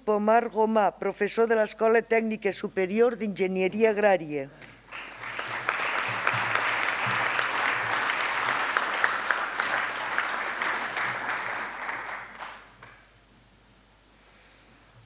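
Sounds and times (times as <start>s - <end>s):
audience applause: 4.9s - 13.0s.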